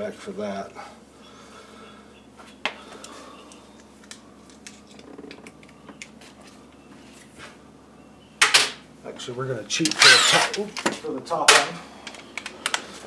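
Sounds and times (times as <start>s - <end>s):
hand tools clicking and clinking: 9.8s - 12.8s.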